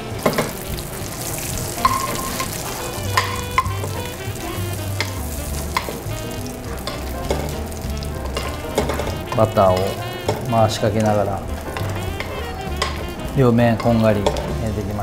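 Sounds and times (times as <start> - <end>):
fish sizzling in butter: 0.0 - 15.0
spoon clinking against pan: 1.7 - 6.1, 6.7 - 7.7, 8.3 - 14.6.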